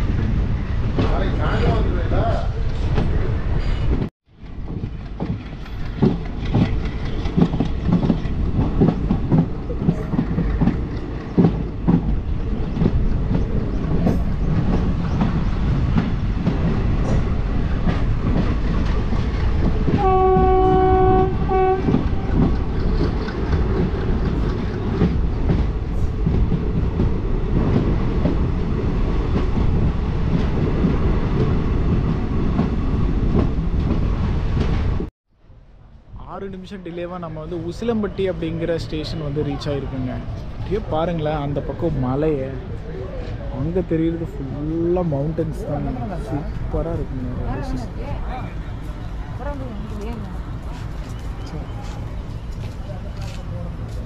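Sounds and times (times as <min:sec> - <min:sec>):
train wheels clattering: 0:03.8 - 0:34.9
train horn blast: 0:19.9 - 0:22.4.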